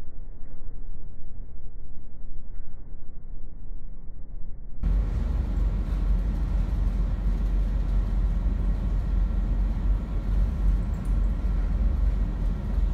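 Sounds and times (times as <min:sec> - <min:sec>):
wind: 0:00.0 - 0:12.9
sea waves: 0:04.8 - 0:12.9
ship engine drone: 0:04.8 - 0:12.9.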